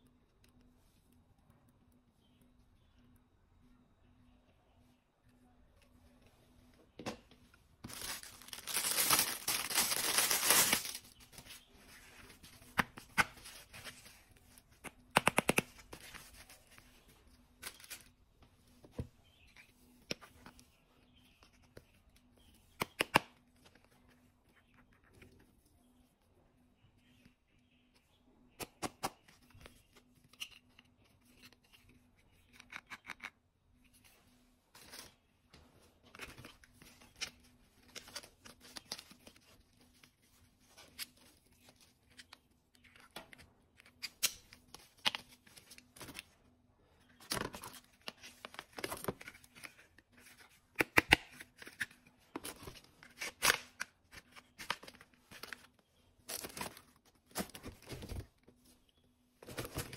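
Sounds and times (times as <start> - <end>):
packaging rustling and tearing: 7.8 - 11.3.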